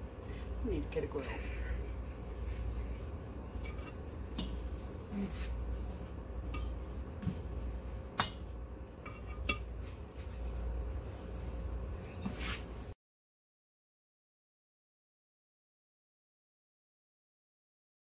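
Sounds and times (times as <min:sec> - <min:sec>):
low steady hum: 0:00.0 - 0:13.0
metal tongs clinking on pans: 0:08.2 - 0:09.7.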